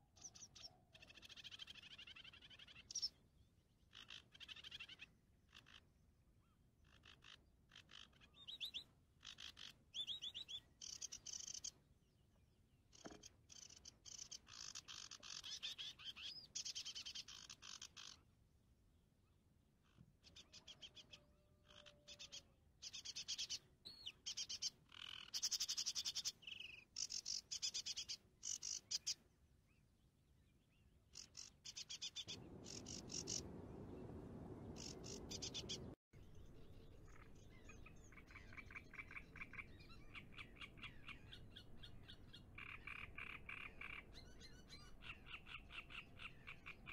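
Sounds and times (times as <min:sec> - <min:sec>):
bird chirps: 0:00.2 - 0:03.2, 0:06.4 - 0:11.8, 0:12.9 - 0:18.2, 0:19.9 - 0:29.8, 0:30.5 - 0:46.9
frogs calling in pulsing trills: 0:06.8 - 0:11.7, 0:12.9 - 0:18.2, 0:24.2 - 0:29.2, 0:31.1 - 0:33.5, 0:37.1 - 0:46.9
low rushing noise: 0:32.3 - 0:36.5.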